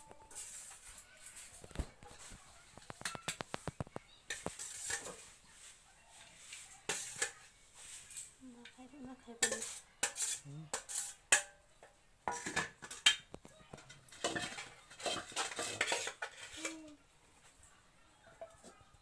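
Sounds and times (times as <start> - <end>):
spoon clinking on steel plates: 2.9 - 3.5, 4.3 - 5.4, 6.5 - 16.9.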